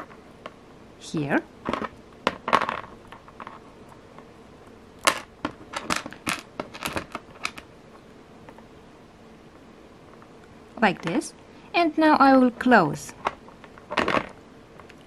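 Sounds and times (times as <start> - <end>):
handling noise: 1.6 - 8.7, 13.1 - 15.0.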